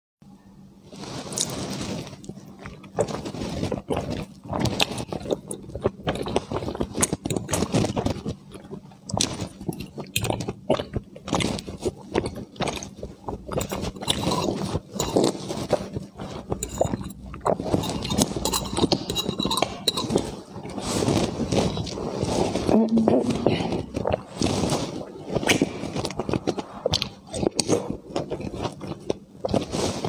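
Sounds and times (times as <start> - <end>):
person biting and chewing food: 1.2 - 30.0
mouth clicks and smacks: 23.0 - 29.7.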